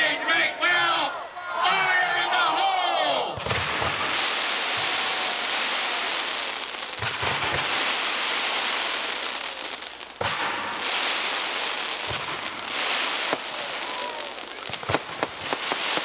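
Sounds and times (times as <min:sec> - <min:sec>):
pyrotechnics crackling and hissing: 0:03.4 - 0:16.0.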